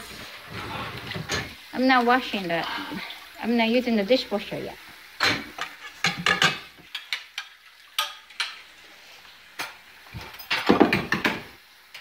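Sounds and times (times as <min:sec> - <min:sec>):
dishes and cutlery clinking: 0:05.2 - 0:08.7, 0:09.6 - 0:11.5.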